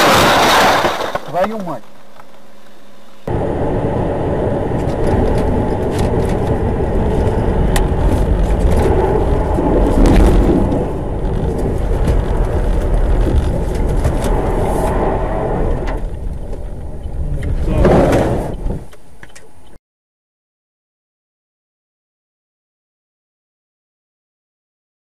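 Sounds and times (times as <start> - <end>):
car engine: 0.0 - 19.8
road noise: 0.0 - 19.8.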